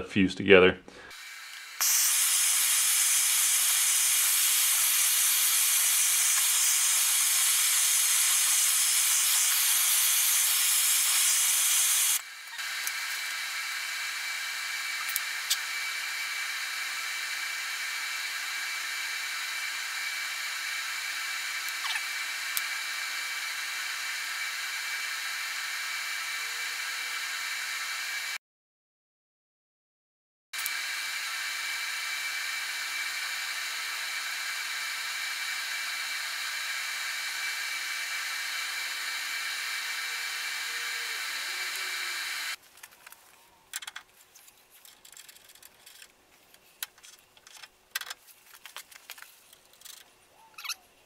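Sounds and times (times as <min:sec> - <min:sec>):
gas torch flame hissing: 0:01.0 - 0:28.4, 0:30.6 - 0:42.6
welding arc hissing: 0:01.0 - 0:28.4, 0:30.6 - 0:42.6
small clicks: 0:42.8 - 0:50.8.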